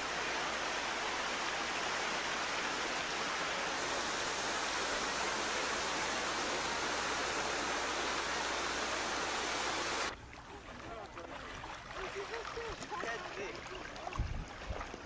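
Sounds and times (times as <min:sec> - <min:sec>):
stream running over rocks: 0:00.0 - 0:15.0.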